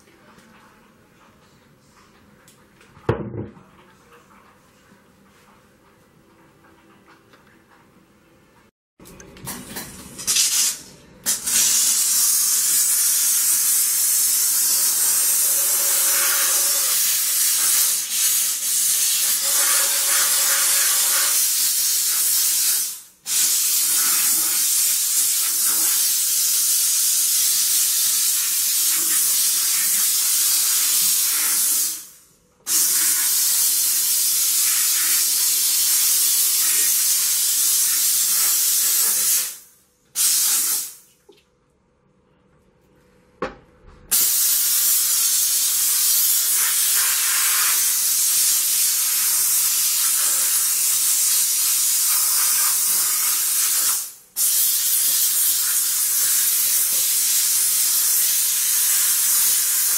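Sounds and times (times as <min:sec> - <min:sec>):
steam cleaner hissing: 0:10.3 - 0:41.0, 0:44.1 - 0:59.9.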